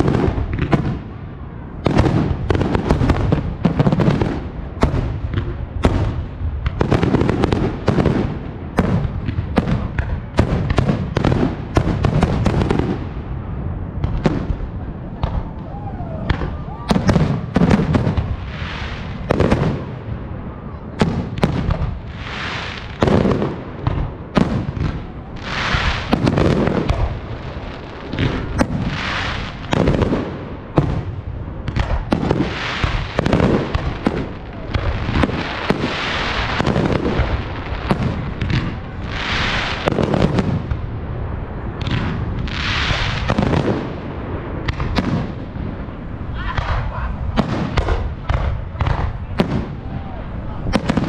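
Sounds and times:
crackling and rumbling: 0.0s - 51.0s.

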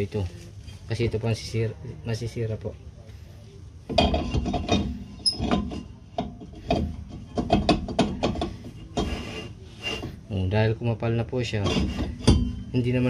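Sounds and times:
brake drum knocking and clattering: 3.9s - 9.3s, 11.6s - 13.0s
brake drum scraping: 3.9s - 10.5s, 11.4s - 13.0s.

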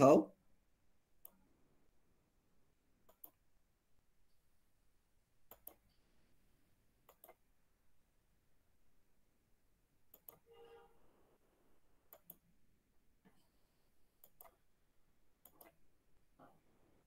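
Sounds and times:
computer mouse clicks: 1.2s - 1.4s, 3.0s - 3.4s, 5.4s - 6.0s, 7.0s - 7.5s, 10.1s - 10.4s, 12.1s - 12.5s, 14.2s - 14.7s, 15.4s - 15.8s.

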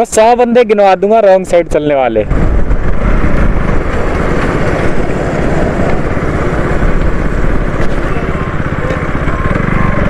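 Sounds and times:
wind and road noise: 0.0s - 10.0s
motorcycle engine running: 2.3s - 10.0s.

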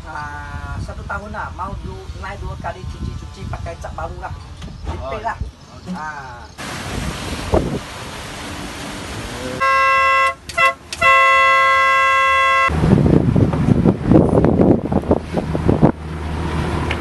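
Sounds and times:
horn blasts: 9.4s - 12.8s.

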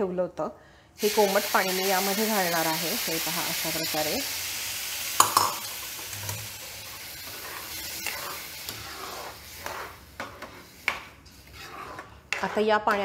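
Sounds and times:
food sizzling in a hot pan: 1.0s - 12.3s
spoon knocking against pan: 5.2s - 5.6s
spoon stirring and scraping: 5.2s - 13.0s.

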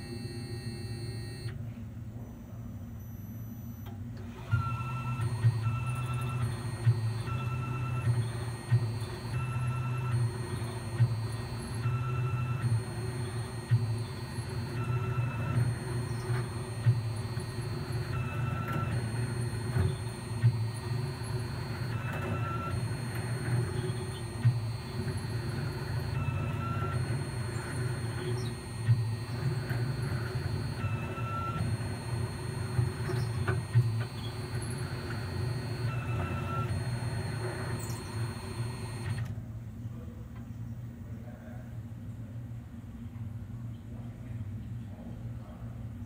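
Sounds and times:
high-pitched motor whines: 4.6s - 39.1s
lathe machine hum: 13.0s - 39.0s.

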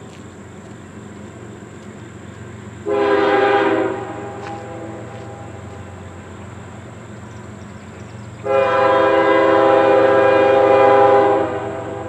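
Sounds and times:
low rumble of approaching train: 0.0s - 12.0s
locomotive air horn blast: 2.8s - 5.6s, 8.4s - 12.0s.

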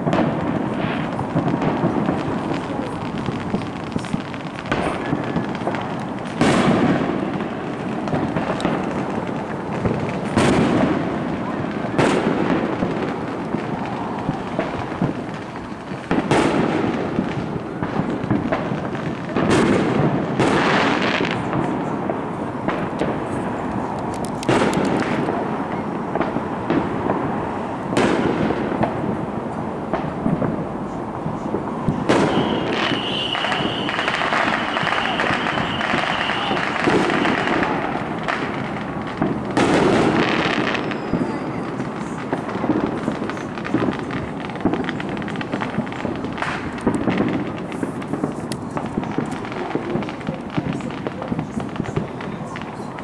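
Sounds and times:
fireworks bangs with echo: 0.0s - 53.0s.

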